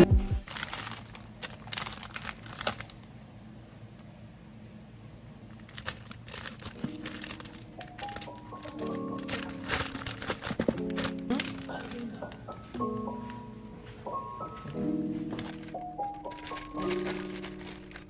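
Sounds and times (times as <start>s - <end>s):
plastic bag crinkling: 0.4s - 3.1s, 5.4s - 12.6s, 14.4s - 18.0s.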